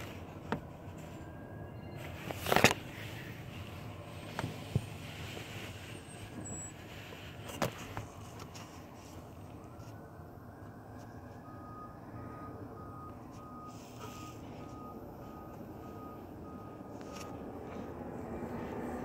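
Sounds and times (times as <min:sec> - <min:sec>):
low idling engine rumble: 0:00.0 - 0:19.0
reversing alarm beeping: 0:01.2 - 0:02.3, 0:05.9 - 0:06.9, 0:09.4 - 0:19.0.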